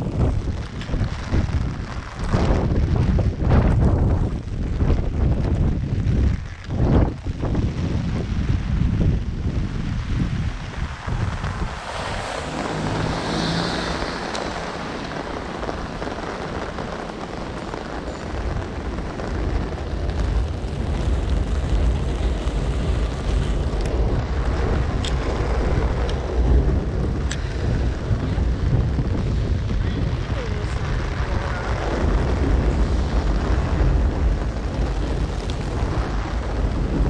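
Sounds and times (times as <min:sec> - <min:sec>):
heavy rain hissing: 0:00.0 - 0:37.0
wind gusts buffeting microphone: 0:00.0 - 0:37.0.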